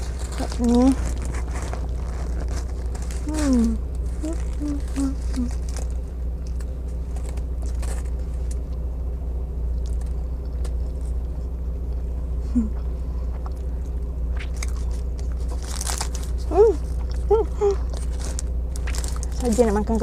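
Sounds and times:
car engine idling: 0.0 - 20.0
person chewing: 9.7 - 12.1, 12.7 - 19.4.

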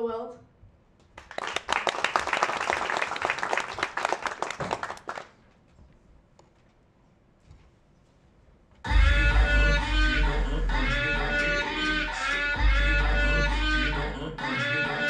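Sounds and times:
audience applauding: 1.2 - 5.4.

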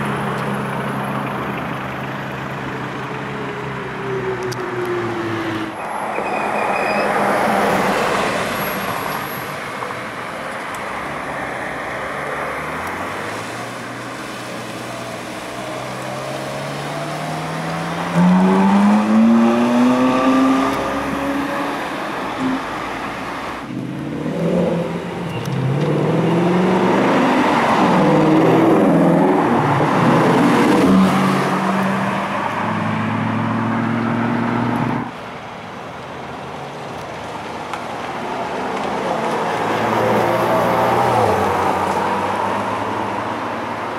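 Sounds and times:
engines revving: 11.5 - 35.1.

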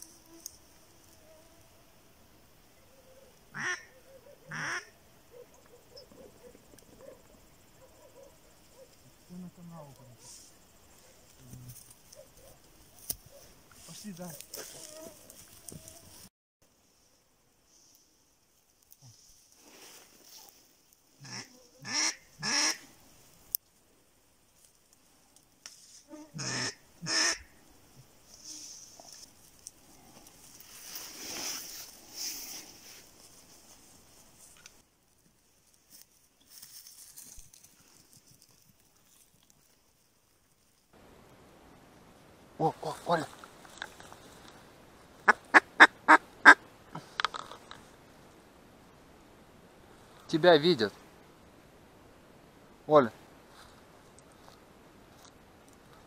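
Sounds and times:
duck quacking harshly: 3.6 - 3.9, 4.5 - 4.9, 21.2 - 22.8, 26.3 - 27.5.

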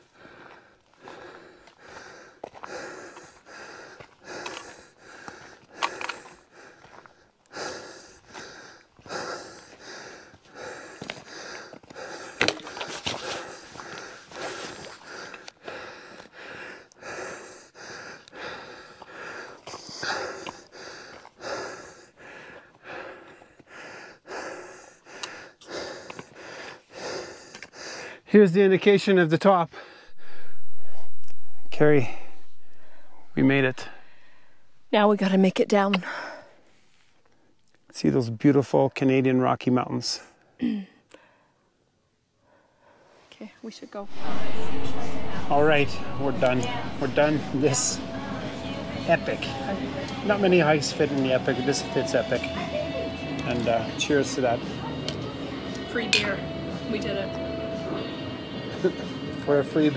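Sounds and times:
person panting heavily: 0.0 - 28.3, 29.7 - 31.1, 32.0 - 34.9, 36.0 - 37.1, 44.0 - 50.5.

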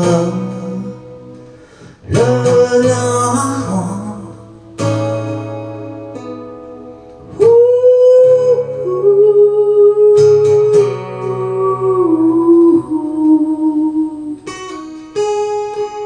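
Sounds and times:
acoustic guitar strumming: 0.0 - 16.0
man singing long notes: 2.0 - 4.6, 7.3 - 14.6.

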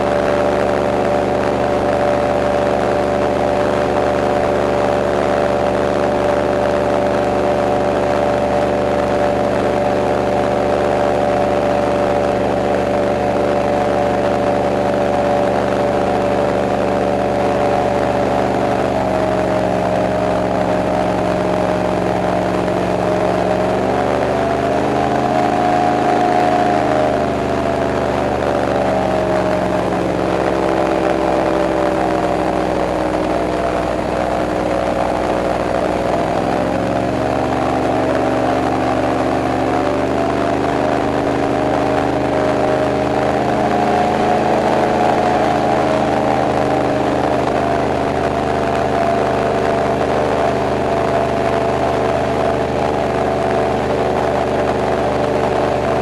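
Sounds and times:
airboat engine and propeller drone: 0.0 - 56.0.

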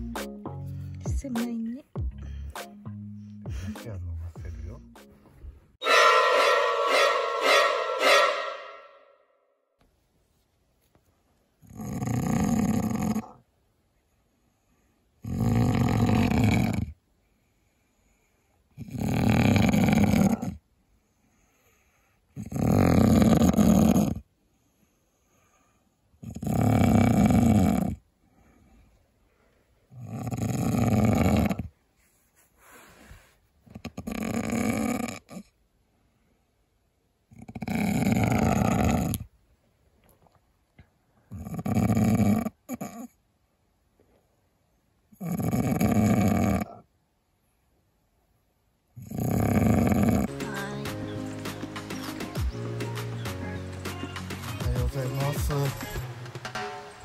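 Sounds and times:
faint breath: 2.1 - 3.7, 14.0 - 15.2, 17.2 - 18.8, 20.8 - 22.4, 24.4 - 26.1, 28.2 - 29.9, 32.0 - 33.6
person snoring loudly: 11.6 - 13.4, 15.2 - 16.9, 18.8 - 20.6, 22.4 - 24.2, 26.2 - 28.0, 29.9 - 31.7, 33.9 - 35.4, 37.3 - 39.2, 41.3 - 43.1, 45.2 - 46.8, 49.0 - 50.9.

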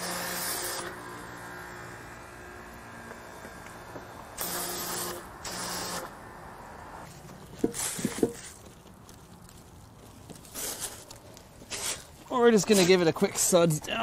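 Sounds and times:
pump humming: 0.0 - 7.1.

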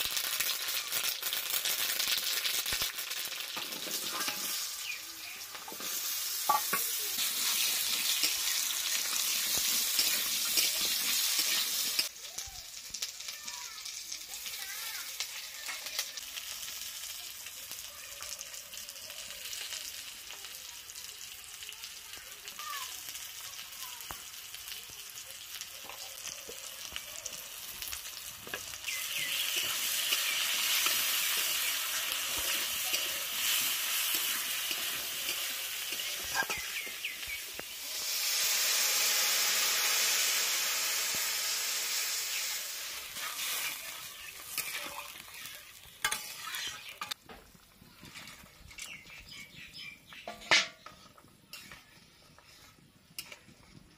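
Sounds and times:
food sizzling in oil: 0.0 - 53.9
metal spatula scraping: 3.6 - 12.1, 28.4 - 37.4, 43.0 - 47.2, 50.2 - 53.9.

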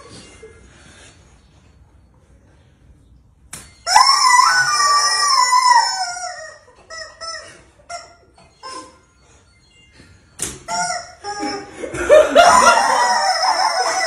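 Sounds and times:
rubber chicken toy squawking: 3.9 - 9.0, 10.6 - 11.7, 12.5 - 14.0.

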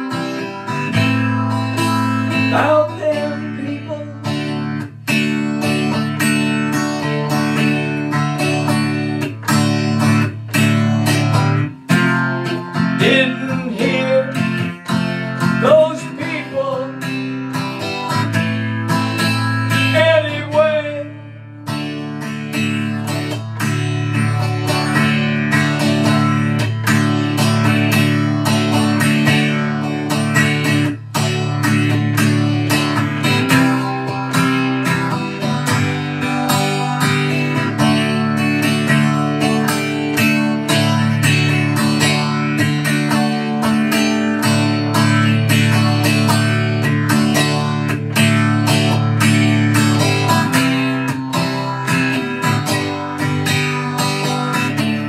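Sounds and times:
acoustic guitar strummed: 0.0 - 55.0
man singing long notes: 2.5 - 4.4, 13.0 - 14.8, 15.6 - 17.0, 19.8 - 21.4.

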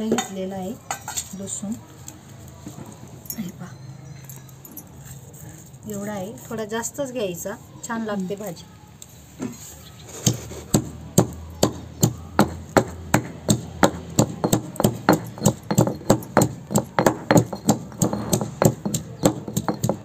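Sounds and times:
stone pestle pounding in mortar: 10.2 - 20.0.

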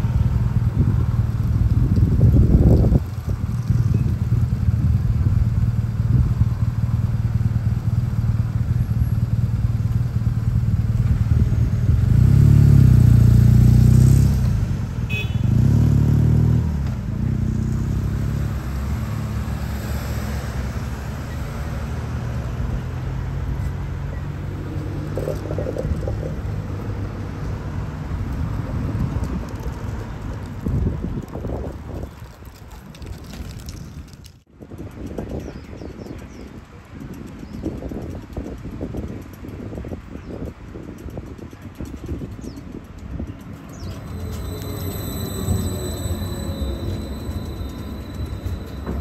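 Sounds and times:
traffic low rumble: 0.0 - 49.0
vehicles passing close: 0.0 - 49.0.

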